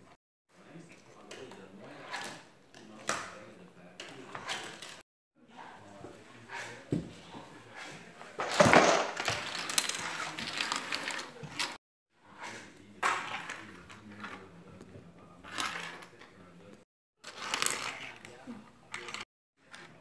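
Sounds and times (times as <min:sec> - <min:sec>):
dominoes clattering on wooden floor: 0:08.4 - 0:11.8.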